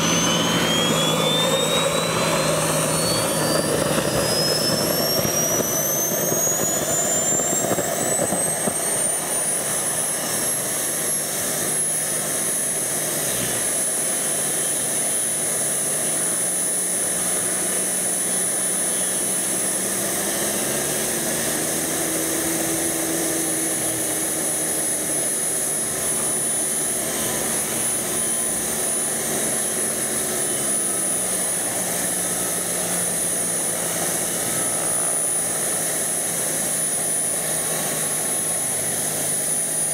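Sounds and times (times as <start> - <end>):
low hum: 0.0 - 39.9
model helicopter whine: 0.0 - 39.9.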